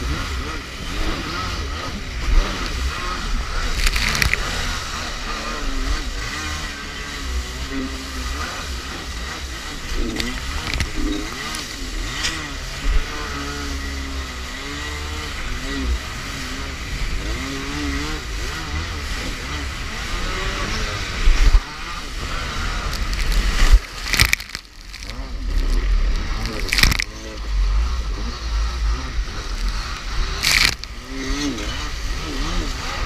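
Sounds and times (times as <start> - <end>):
jet ski engine running hard: 0.0 - 33.0
water splashing against hull: 2.7 - 4.9, 22.0 - 27.2, 29.2 - 31.1.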